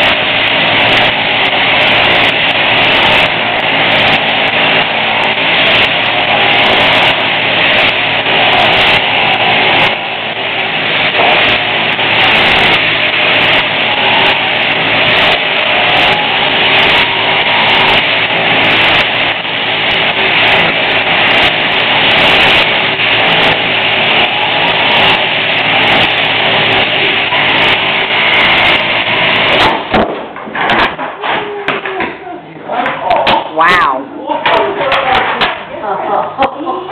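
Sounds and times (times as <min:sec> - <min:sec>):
sheep shearing handpiece running: 0:00.0 - 0:30.0.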